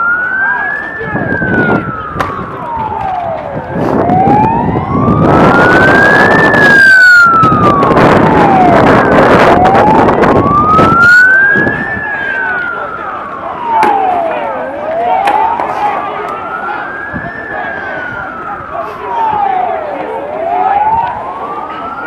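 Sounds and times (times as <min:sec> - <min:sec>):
emergency siren wailing: 0:00.0 - 0:22.0
loud rushing noise: 0:01.1 - 0:12.1.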